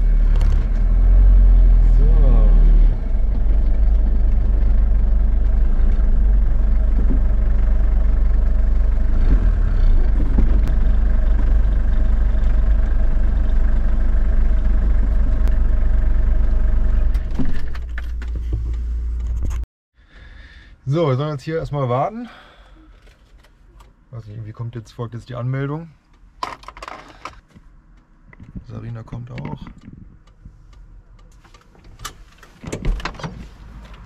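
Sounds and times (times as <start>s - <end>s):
engine running with low hum: 0.0s - 19.6s.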